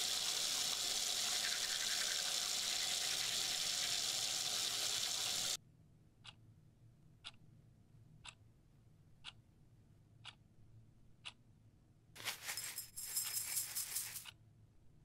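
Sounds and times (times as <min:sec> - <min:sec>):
water running from tap: 0:00.0 - 0:05.6
clock ticking: 0:07.2 - 0:07.4, 0:08.2 - 0:08.4, 0:09.2 - 0:09.5, 0:10.2 - 0:10.4.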